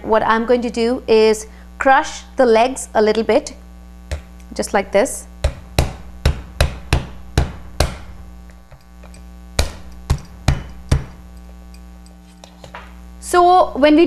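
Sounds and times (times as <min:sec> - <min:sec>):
metal mallet knocking crab shells: 0:05.4 - 0:11.2.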